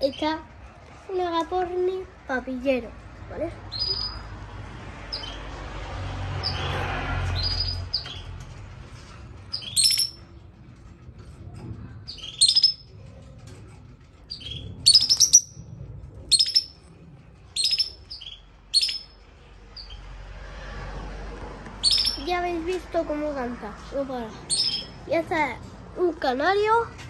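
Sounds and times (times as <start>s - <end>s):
lovebird shrill chirps: 3.7s - 4.3s, 9.5s - 10.2s, 12.1s - 12.8s, 14.3s - 15.6s, 16.3s - 16.8s, 17.6s - 19.2s, 21.8s - 22.4s, 24.5s - 25.0s.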